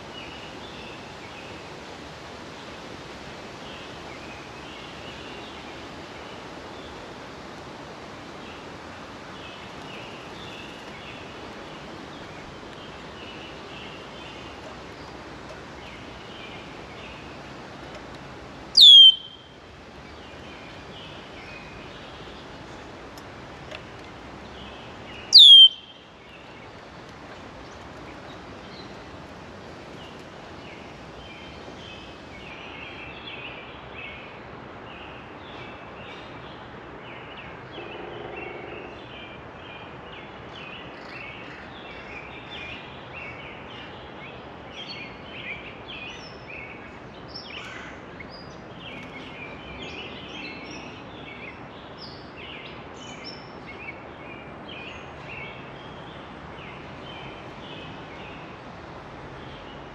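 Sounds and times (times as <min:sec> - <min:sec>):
outdoor background hiss: 0:00.0 - 0:59.9
songbirds chirping: 0:00.0 - 0:59.9
low-pitched bird call: 0:18.8 - 0:19.5, 0:25.3 - 0:26.0.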